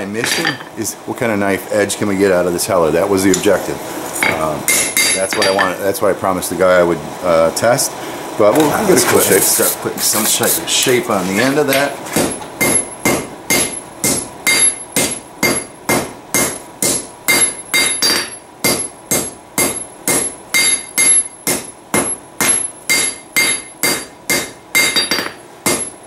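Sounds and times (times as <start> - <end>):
hammer striking metal on anvil: 4.2 - 5.8, 12.2 - 26.0.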